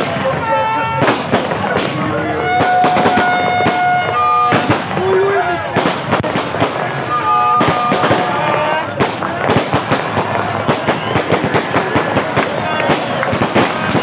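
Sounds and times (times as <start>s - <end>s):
fireworks bangs and crackles: 0.0s - 14.0s
steady held tones: 1.6s - 9.0s.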